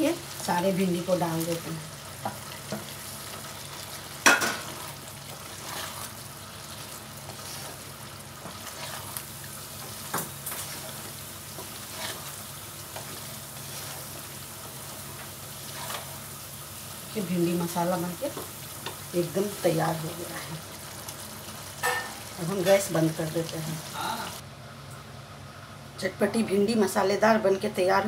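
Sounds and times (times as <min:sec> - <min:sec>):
okra sizzling in gravy: 0:00.0 - 0:24.4.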